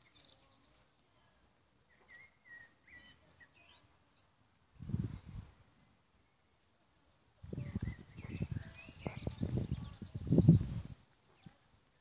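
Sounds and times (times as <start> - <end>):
high bird chirps: 1.9 - 4.4, 7.5 - 11.5.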